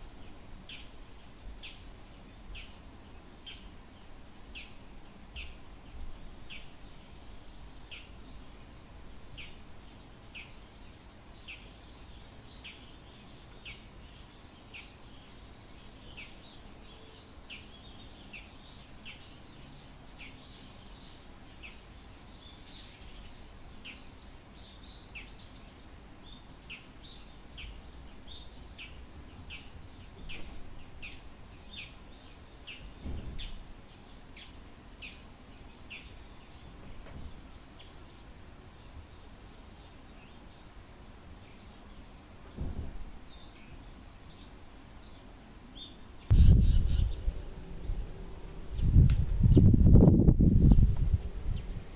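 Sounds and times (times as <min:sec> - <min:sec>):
bird high-pitched sharp calls: 0:46.3 - 0:49.0
soft low thumps: 0:46.3 - 0:51.3
loud low rumble: 0:46.3 - 0:51.7.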